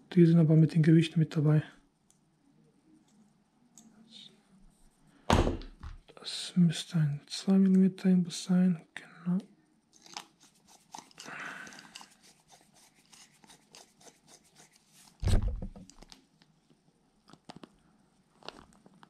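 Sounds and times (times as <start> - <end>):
loud dull thump: 5.3 - 6.0, 15.2 - 15.8.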